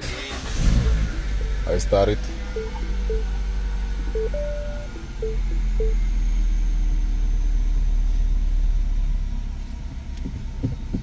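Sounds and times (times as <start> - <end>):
car engine idling: 0.0 - 11.0
short beeps: 2.2 - 3.6, 4.2 - 6.3.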